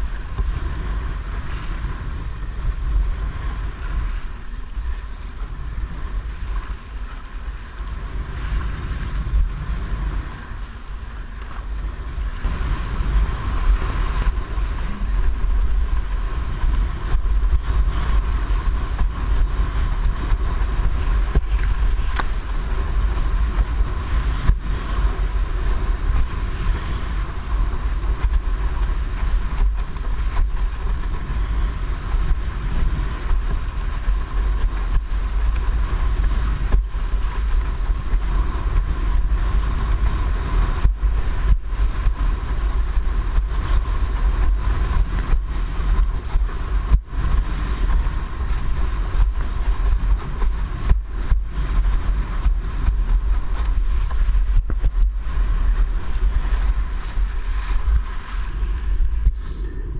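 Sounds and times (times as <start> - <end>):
water rushing and splashing: 0.0 - 59.9
wind buffeting microphone: 0.0 - 59.9.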